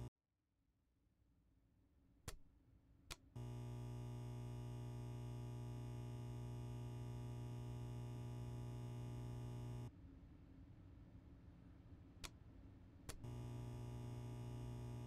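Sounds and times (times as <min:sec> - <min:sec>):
low electrical hum: 0:03.4 - 0:15.0.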